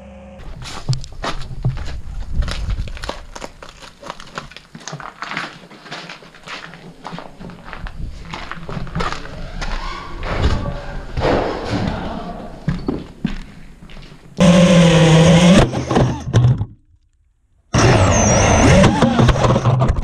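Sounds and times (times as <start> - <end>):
loud steady buzz: 0.0 - 0.8, 14.4 - 16.4
drone propellers whirring: 9.2 - 11.2, 14.4 - 16.4, 17.8 - 19.6.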